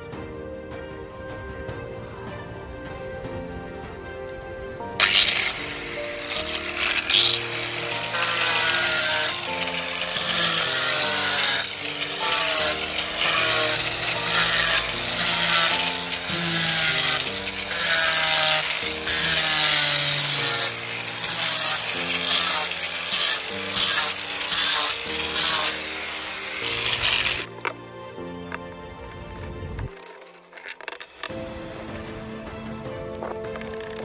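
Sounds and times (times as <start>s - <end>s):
background music: 0.0s - 34.0s
angle grinder sanding wood: 5.0s - 27.8s.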